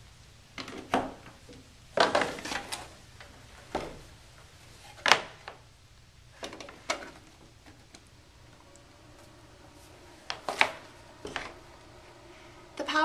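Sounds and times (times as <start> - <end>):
power cord plugging in: 6.4 - 12.7.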